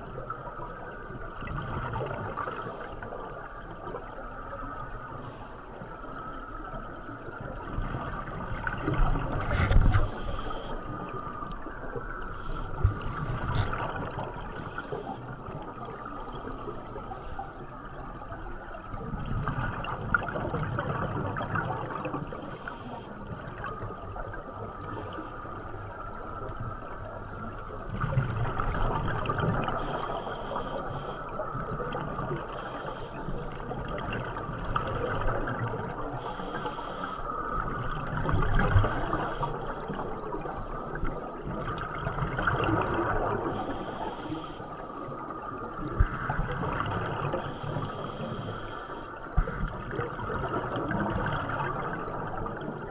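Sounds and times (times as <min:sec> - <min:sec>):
muffled underwater rush: 0:00.0 - 0:52.9
diver bubbles gurgling underwater: 0:06.8 - 0:17.0, 0:17.9 - 0:22.5, 0:25.8 - 0:30.2, 0:37.3 - 0:52.9.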